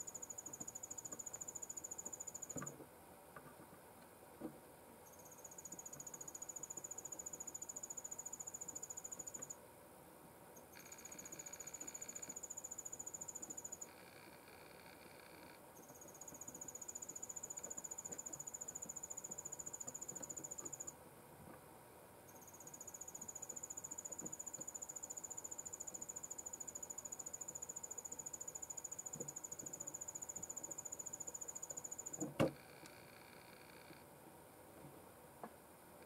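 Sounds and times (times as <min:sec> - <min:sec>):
insect trilling: 0:10.8 - 0:20.9.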